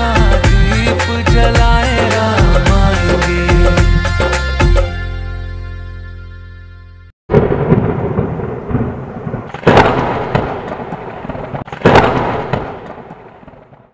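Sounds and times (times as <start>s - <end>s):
thunderclaps with rumbling: 7.3s - 13.9s.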